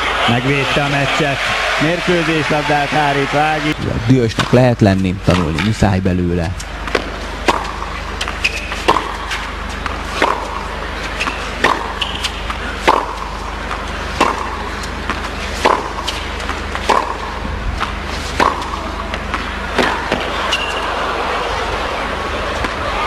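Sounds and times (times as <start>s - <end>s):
steady low hum: 2.2s - 23.0s
tennis ball struck by rackets: 6.8s - 20.9s
shoe squeaks: 8.2s - 9.4s, 11.0s - 12.7s.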